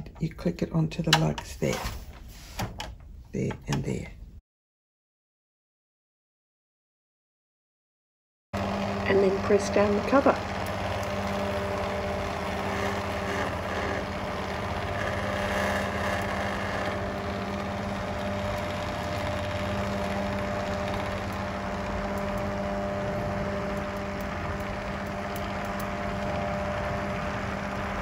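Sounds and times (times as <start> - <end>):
machine hum with held tones: 8.6 - 28.0.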